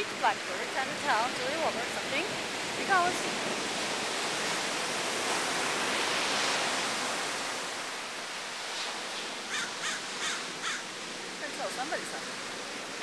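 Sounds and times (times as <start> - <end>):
ocean surf washing on shore: 0.0 - 13.0
crow calling: 9.5 - 10.9.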